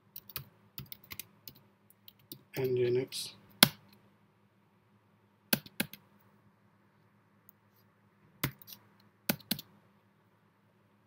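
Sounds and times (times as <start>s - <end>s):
faint low hum: 0.0s - 11.0s
keyboard keystrokes: 8.4s - 9.7s.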